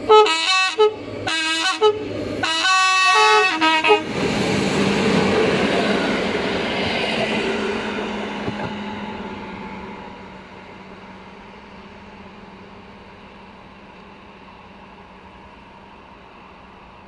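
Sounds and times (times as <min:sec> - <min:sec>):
locomotive horn blasts: 0:00.0 - 0:04.1
train passing with loud rushing: 0:00.0 - 0:17.0.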